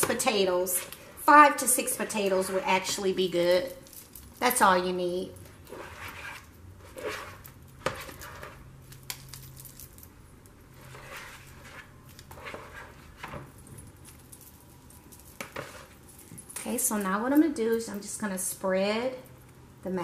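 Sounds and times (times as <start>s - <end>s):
metal bangles jingling: 3.2s - 4.8s, 7.3s - 10.4s, 13.4s - 18.0s
spoon scraping plastic bowl: 5.7s - 8.7s, 10.8s - 13.3s.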